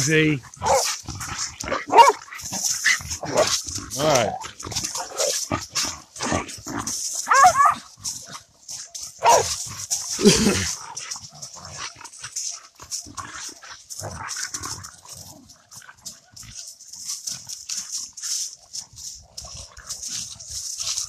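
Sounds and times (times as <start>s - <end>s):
dogs barking and growling: 0.0s - 21.0s
paws scuffling in dry leaves: 0.0s - 21.0s
dog yelping: 0.6s - 0.9s, 1.7s - 2.2s, 7.2s - 7.8s, 9.2s - 9.5s.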